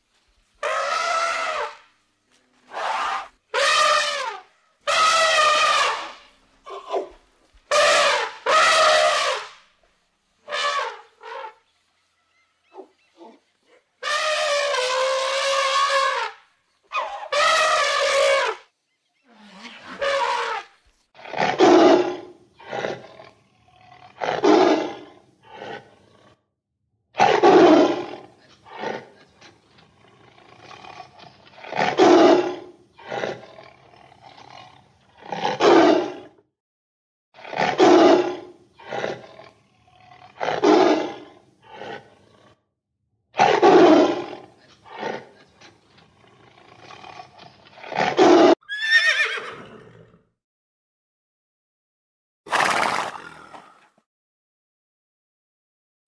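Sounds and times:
tiger roaring: 0:21.2 - 0:26.4, 0:27.2 - 0:36.4, 0:37.4 - 0:42.6, 0:43.4 - 0:49.8, 0:52.5 - 0:54.0
tiger grunts: 0:43.4 - 0:48.6, 0:52.5 - 0:54.0
horse whinny: 0:48.0 - 0:50.3, 0:52.5 - 0:53.9.

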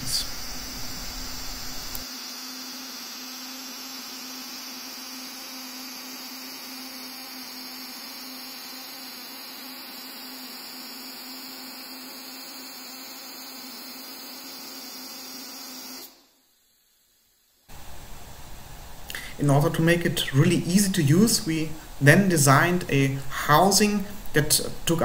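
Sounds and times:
plasma discharge buzzing: 0:00.0 - 0:16.2.

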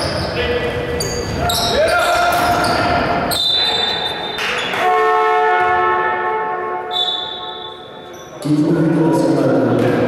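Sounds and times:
shoe squeaks: 0:00.0 - 0:04.7, 0:06.9 - 0:08.5
horn sounding: 0:04.7 - 0:08.0.

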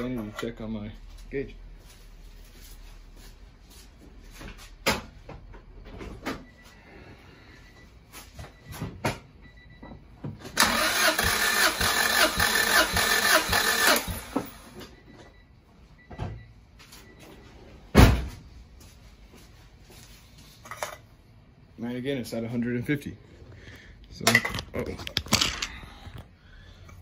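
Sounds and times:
engine cranking by starter: 0:10.6 - 0:14.8.

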